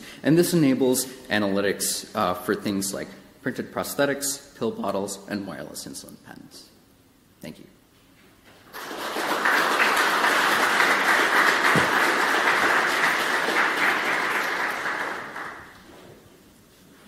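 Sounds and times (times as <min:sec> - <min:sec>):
audience applauding: 0:08.7 - 0:15.9.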